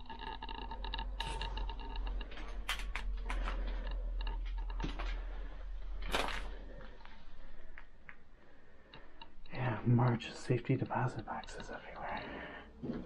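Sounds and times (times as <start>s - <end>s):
debris underfoot: 0.0s - 7.1s.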